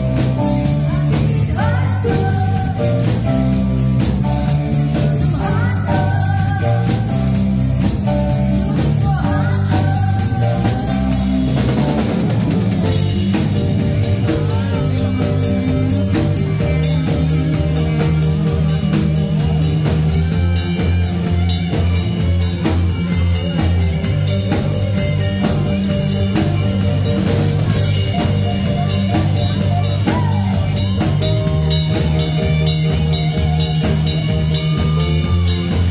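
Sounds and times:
live band playing: 0.0 - 35.9
woman singing: 0.4 - 3.3, 4.9 - 7.4, 8.5 - 11.5.

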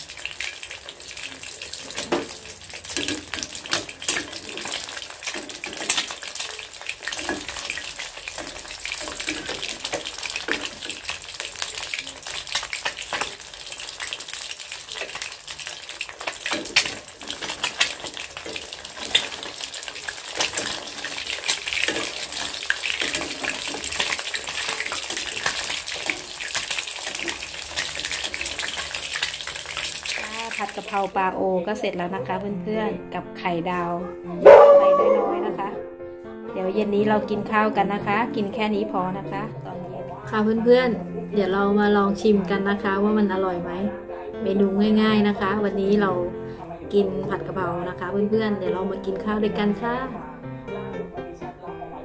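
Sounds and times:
egg sizzling in hot oil: 0.0 - 31.2.

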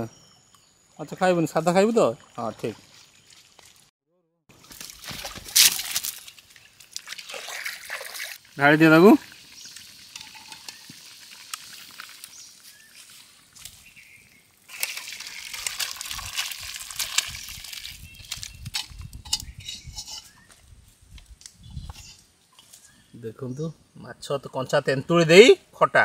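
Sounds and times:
water sloshing and splashing: 2.0 - 3.9, 4.5 - 8.6, 14.6 - 18.5.

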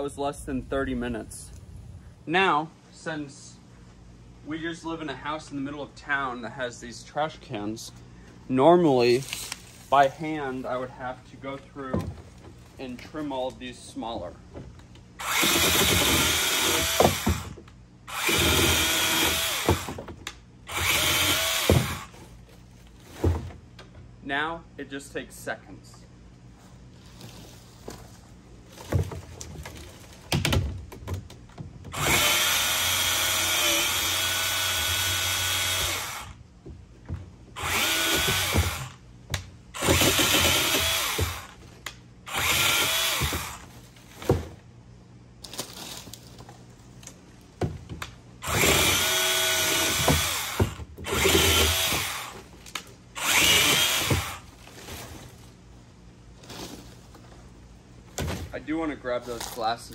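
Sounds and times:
electric chainsaw cutting fronds: 15.2 - 22.2, 31.9 - 36.4, 37.6 - 39.0, 39.7 - 41.6, 42.2 - 44.2, 48.4 - 55.4.

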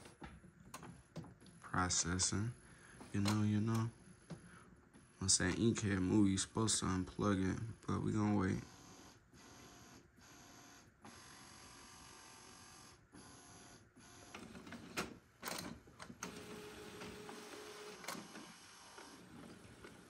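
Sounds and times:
printer mechanism clicks and knocks: 3.2 - 3.9
printer motor whine: 8.3 - 20.0.

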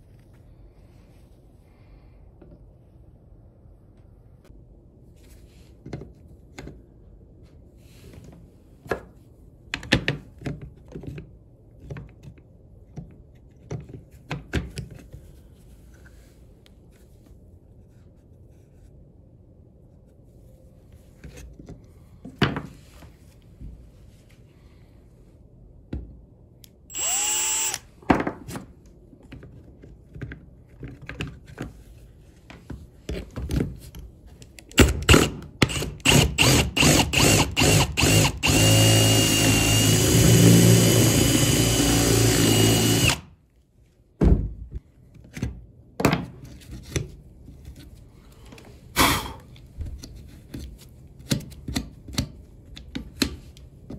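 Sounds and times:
cordless drill running: 26.9 - 27.9, 35.7 - 43.2.

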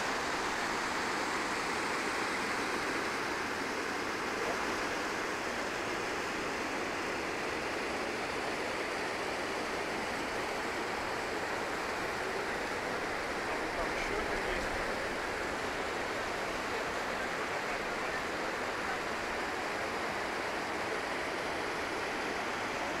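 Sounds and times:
water rushing over cascades: 0.0 - 23.0.

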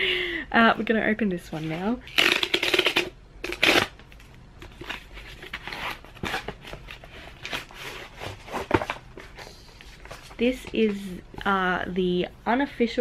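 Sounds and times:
package tearing: 2.1 - 4.2.

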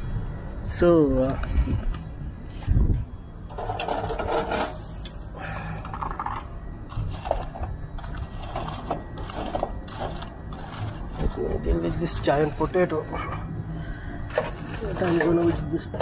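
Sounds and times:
scraping at a barbecue grill: 3.5 - 5.2, 5.8 - 13.4, 14.3 - 16.0.

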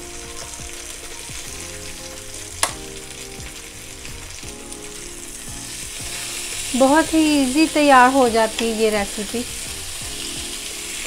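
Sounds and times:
chicken sizzling on a grill: 0.0 - 11.0
metal tongs clacking: 8.4 - 9.3.

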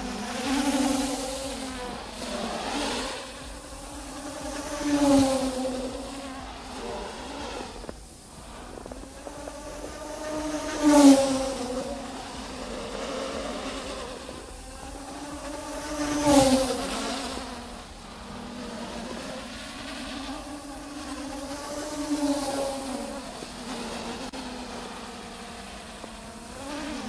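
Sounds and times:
drone propellers buzzing: 0.0 - 27.0.

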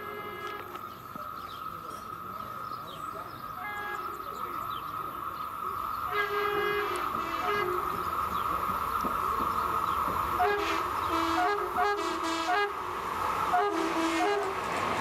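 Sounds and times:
train horn blasts: 0.0 - 0.8, 3.6 - 4.2, 6.1 - 8.0, 10.4 - 12.9, 13.5 - 14.7
distant train approaching: 0.0 - 15.0.

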